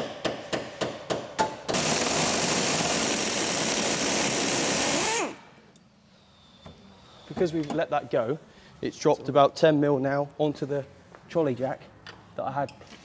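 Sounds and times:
pneumatic wrench spinning: 1.7 - 5.4.

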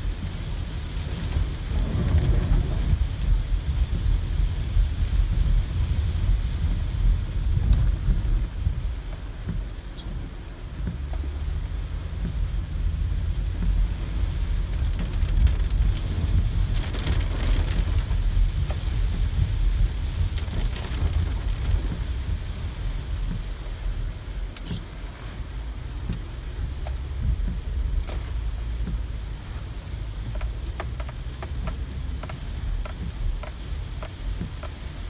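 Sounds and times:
car rumbling: 0.0 - 35.0
rain and road water hissing: 0.0 - 35.0.

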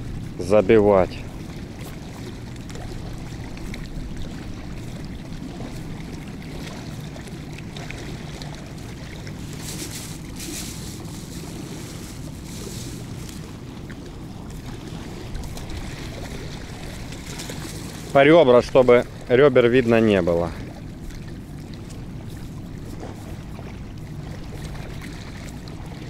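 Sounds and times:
water washing against stony shore: 0.0 - 26.0
wind rumbling on microphone: 8.4 - 18.2.

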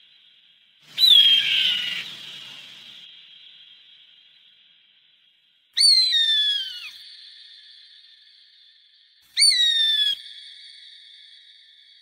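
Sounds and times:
bird of prey screaming: 0.9 - 2.4, 5.8 - 7.0, 9.4 - 10.2.

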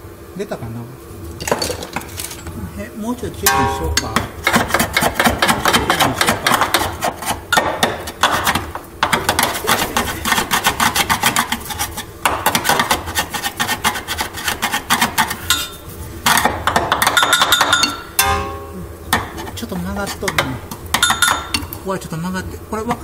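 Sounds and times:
hand tool rasping on metal: 4.0 - 16.6.

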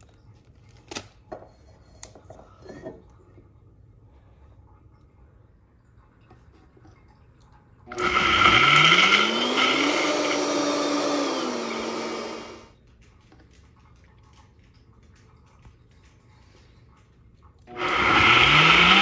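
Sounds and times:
blender motor running: 7.9 - 12.7, 17.7 - 19.0.

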